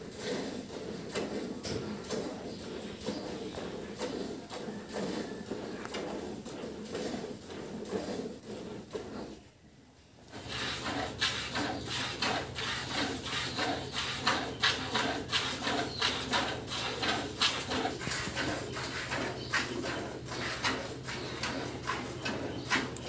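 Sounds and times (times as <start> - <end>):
milk squirting into bucket: 10.3 - 23.0.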